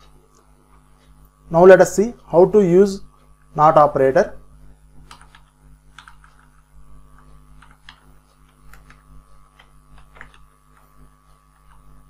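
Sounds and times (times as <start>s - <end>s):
low electrical hum: 0.0s - 12.0s
mouse and keyboard clicks: 7.2s - 10.8s.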